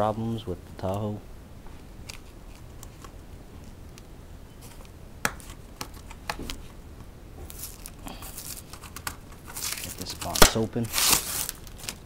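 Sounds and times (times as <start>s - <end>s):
tape rustling as it lifts: 7.4s - 12.0s
fingers picking at packing tape: 7.5s - 12.0s.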